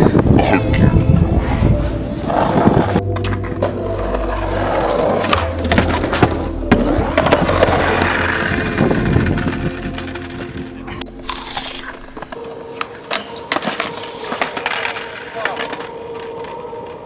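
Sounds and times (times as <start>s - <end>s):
skateboard wheels rolling on asphalt: 1.8s - 10.9s, 11.6s - 17.0s
skateboard clacking on ground: 5.0s - 17.0s.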